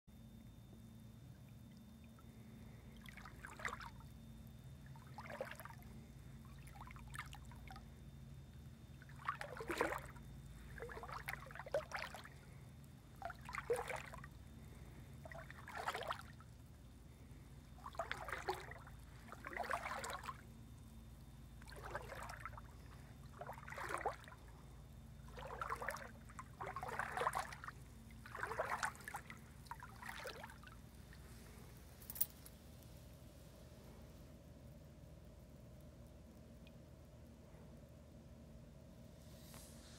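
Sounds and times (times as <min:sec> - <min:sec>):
footsteps wading through water: 0:01.6 - 0:04.2, 0:04.9 - 0:07.9, 0:08.9 - 0:17.2, 0:17.8 - 0:20.5, 0:21.2 - 0:32.3.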